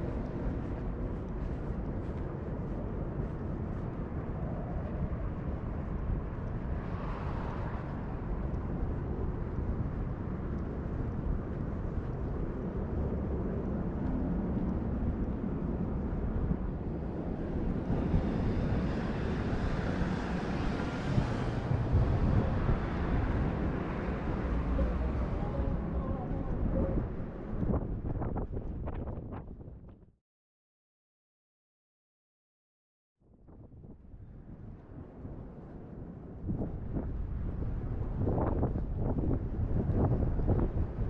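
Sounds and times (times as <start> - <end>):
distant traffic rumble: 17.2 - 28.2.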